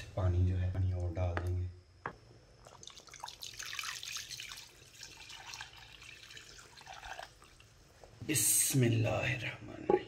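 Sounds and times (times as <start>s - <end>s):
water pouring into broth: 2.6s - 8.0s.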